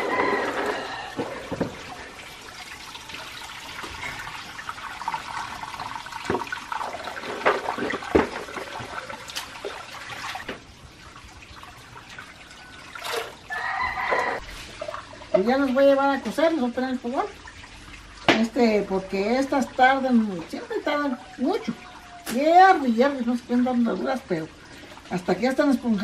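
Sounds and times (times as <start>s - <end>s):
water dripping: 0.0s - 26.0s
water sloshing in plastic bucket: 6.0s - 10.7s.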